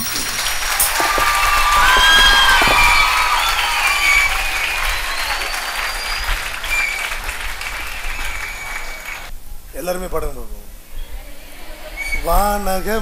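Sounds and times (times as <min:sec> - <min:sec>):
audience clapping: 0:00.0 - 0:09.3.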